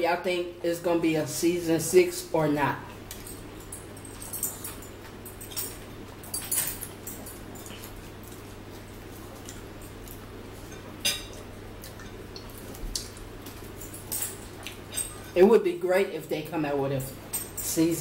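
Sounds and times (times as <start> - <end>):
chewing: 3.1 - 15.4.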